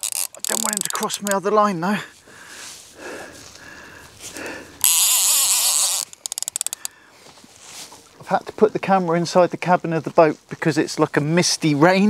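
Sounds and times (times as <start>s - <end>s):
fishing reel drag buzzing: 0.0s - 1.4s, 4.8s - 6.9s
reel ratchet clicks: 0.0s - 1.4s, 4.8s - 7.0s.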